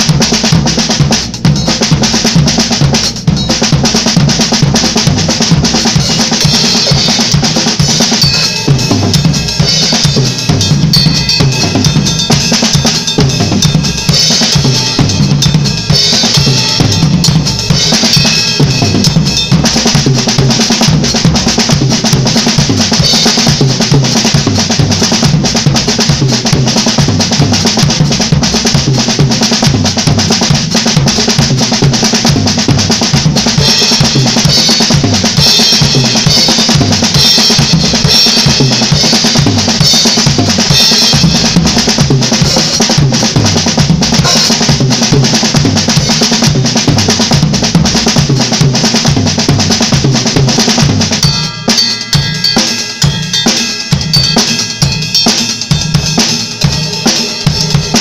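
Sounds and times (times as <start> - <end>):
drum kit played fast: 0.0 - 58.0.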